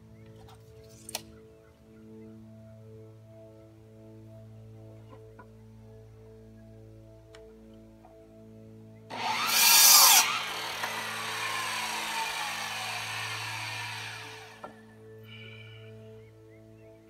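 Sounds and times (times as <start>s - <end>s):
miter saw cutting wood: 9.1s - 14.8s
saw blade spinning down whine: 9.1s - 14.8s.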